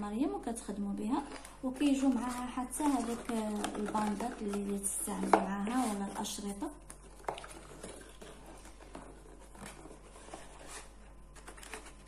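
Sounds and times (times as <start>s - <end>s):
cardboard box rustling and scraping: 1.9s - 6.3s, 7.4s - 12.0s.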